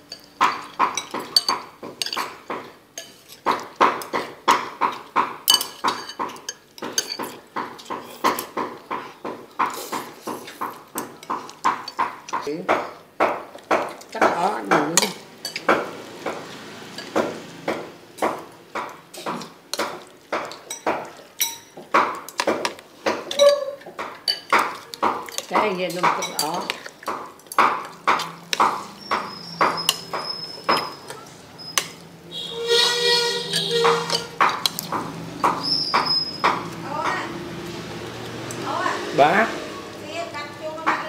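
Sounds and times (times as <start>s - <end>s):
cutlery scraping a ceramic plate: 4.9s - 12.4s, 19.1s - 27.1s, 28.2s - 36.7s.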